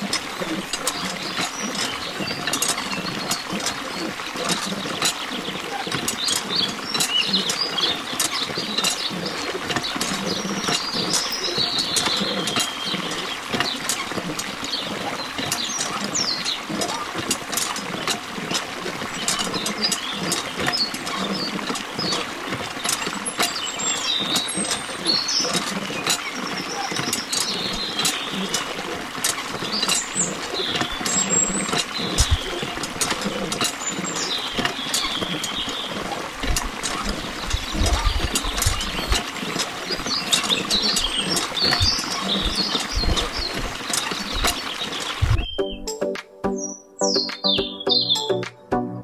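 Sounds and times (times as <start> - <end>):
water stream splashing into tank: 0.0 - 45.5
high chirps: 45.2 - 48.7.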